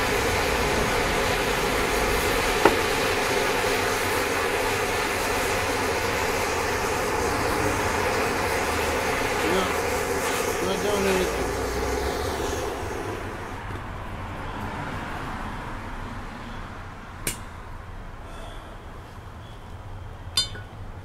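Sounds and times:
gas torch hissing: 0.0 - 13.8
metal rod clinking on steel dish: 20.4 - 20.7.

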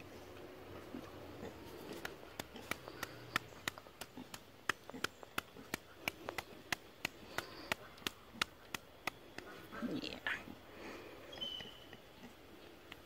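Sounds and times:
pig chewing crunchily: 0.4 - 9.5.

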